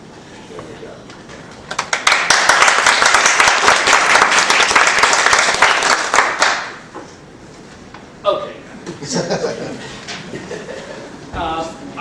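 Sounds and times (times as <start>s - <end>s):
audience applauding: 1.7s - 6.9s.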